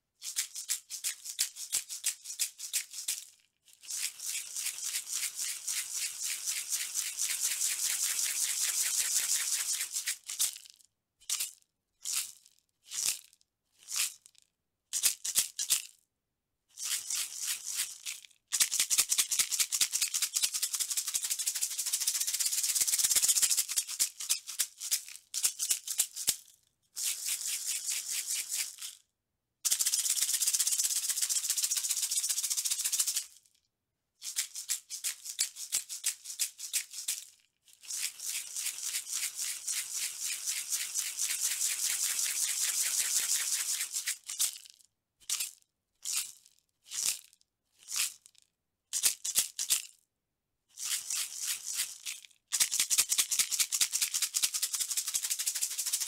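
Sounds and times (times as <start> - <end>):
maraca rattling: 0.2 - 10.6, 16.8 - 29.0, 29.6 - 33.4, 34.2 - 46.4, 50.8 - 56.0.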